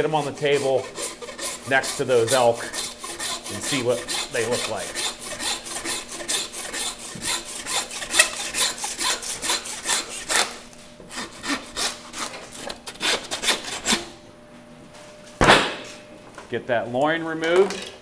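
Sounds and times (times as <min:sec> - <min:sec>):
knife honing on steel: 0:00.0 - 0:12.4.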